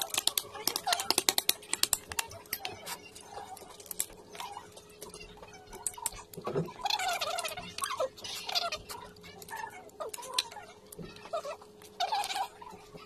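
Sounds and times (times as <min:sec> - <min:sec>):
crab shell cracking: 0:00.0 - 0:02.8, 0:03.6 - 0:04.6.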